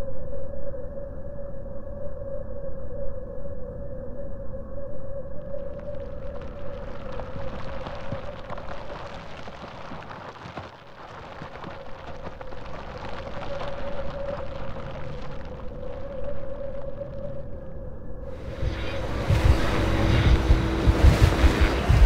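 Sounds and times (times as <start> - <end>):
rain-like crackle: 5.5 - 17.4, 18.3 - 22.0
steady droning tone: 17.2 - 22.0.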